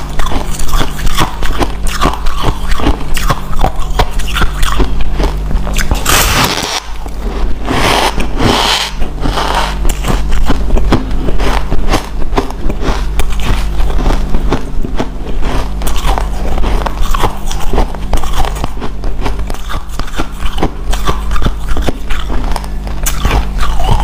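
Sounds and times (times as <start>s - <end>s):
ice being chewed crunching: 0.0s - 24.0s
steady low hum: 0.0s - 24.0s.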